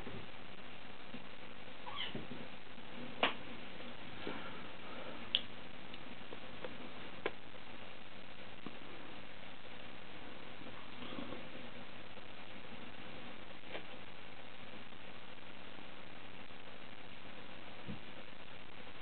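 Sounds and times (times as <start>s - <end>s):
faint steady hiss: 0.0s - 19.0s
kitten mewing: 1.8s - 2.2s.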